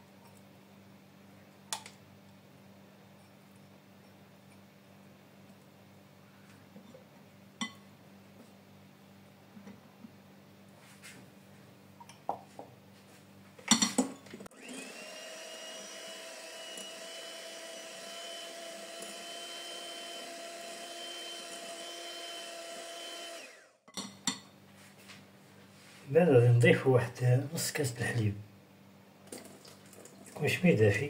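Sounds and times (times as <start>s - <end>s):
electric hand mixer whine: 14.5s - 23.8s.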